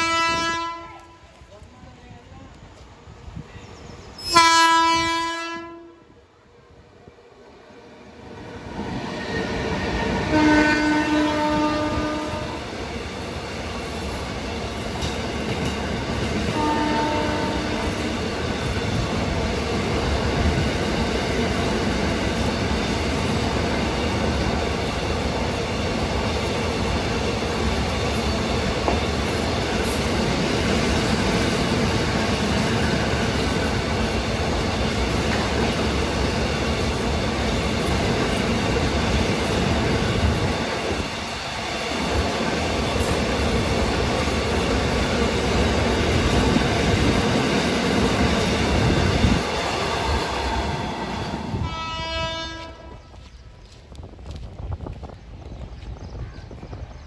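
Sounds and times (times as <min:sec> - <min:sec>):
locomotive horn blasts: 0:00.0 - 0:01.3, 0:04.2 - 0:06.0, 0:10.3 - 0:12.6, 0:16.5 - 0:17.9, 0:51.6 - 0:53.1
train wheel clatter: 0:12.3 - 0:51.5.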